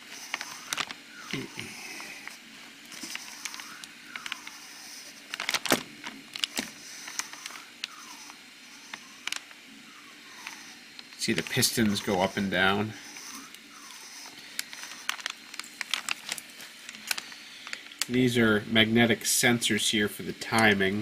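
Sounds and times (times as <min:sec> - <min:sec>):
engine wheezing hiss: 0:00.0 - 0:05.4, 0:06.6 - 0:15.3.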